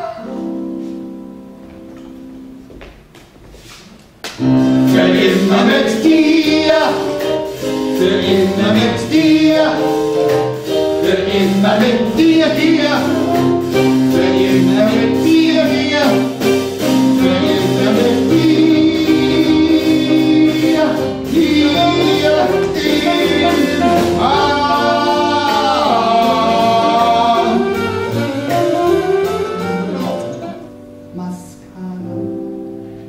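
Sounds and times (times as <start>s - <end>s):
band playing show tune: 4.4s - 31.1s
person singing: 11.0s - 29.0s.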